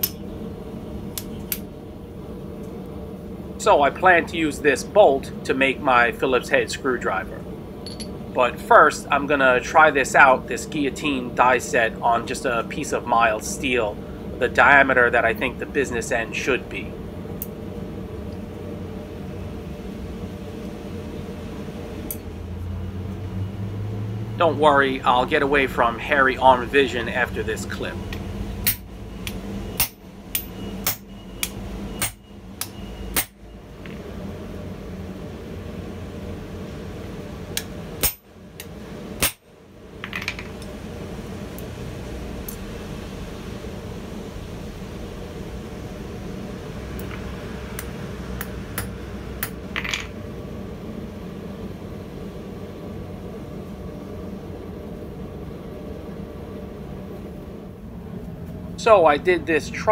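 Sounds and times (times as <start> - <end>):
faint steady hum: 0.0 - 59.9
hammer striking metal: 28.6 - 28.9, 29.8 - 33.4, 38.0 - 38.3, 39.2 - 39.4
hammer striking metal die: 32.0 - 32.2, 33.1 - 33.4.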